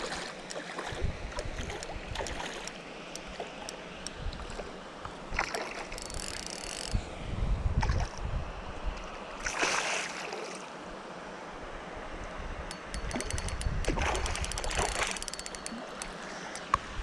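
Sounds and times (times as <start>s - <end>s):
wind rumble on microphone: 0.8s - 2.5s, 6.1s - 9.2s, 12.1s - 15.3s
fishing reel clicking: 5.8s - 7.0s, 12.7s - 16.7s.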